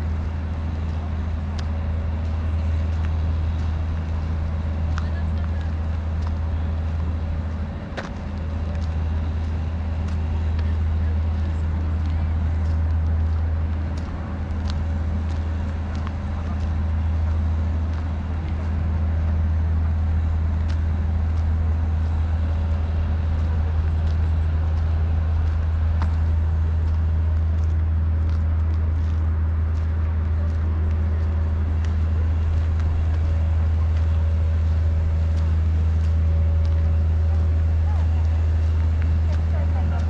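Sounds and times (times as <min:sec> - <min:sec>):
distant road traffic rumble: 0:00.0 - 0:40.0.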